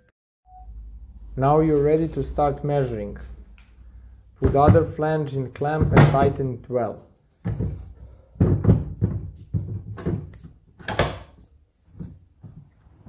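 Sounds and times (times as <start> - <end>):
metal clunks and knocks: 7.4 - 11.4.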